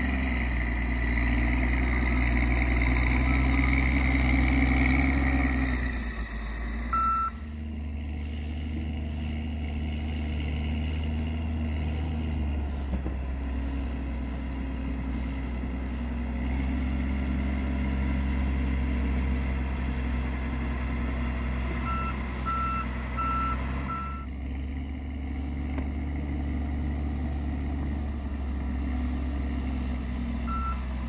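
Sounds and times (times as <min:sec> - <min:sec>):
diesel engine running: 0:00.0 - 0:31.0
reversing alarm beeps: 0:06.9 - 0:07.4, 0:21.8 - 0:24.3, 0:30.5 - 0:30.8.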